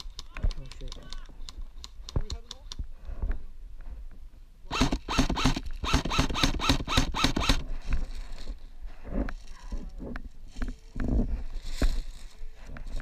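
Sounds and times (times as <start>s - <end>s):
rustling through dry grass: 7.4s - 13.0s
faint shuffling: 7.7s - 13.0s.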